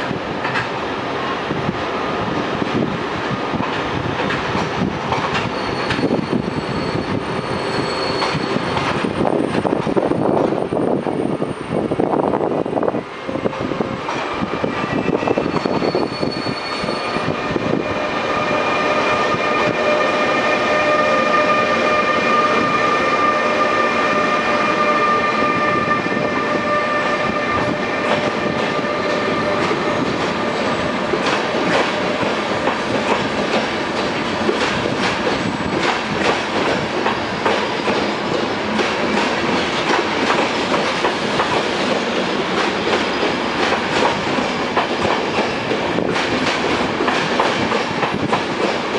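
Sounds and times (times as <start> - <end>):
electric locomotive whine: 0.0 - 48.9
train wheels clicking over rail joints: 3.5 - 6.5, 28.0 - 48.9.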